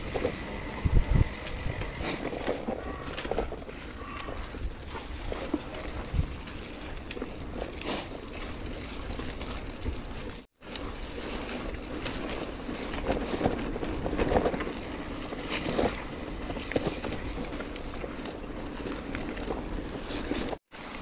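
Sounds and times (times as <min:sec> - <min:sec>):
wind buffeting microphone: 0:00.0 - 0:02.2, 0:03.5 - 0:10.4
bike tyres rumbling on rough track: 0:00.0 - 0:21.0.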